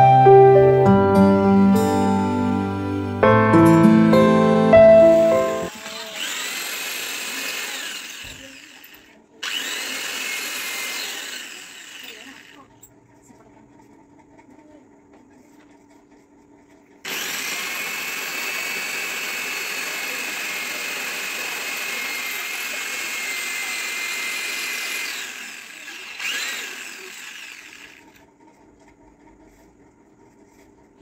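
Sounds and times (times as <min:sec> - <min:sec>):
electric drill boring into tile: 0:05.7 - 0:12.9, 0:17.0 - 0:28.2.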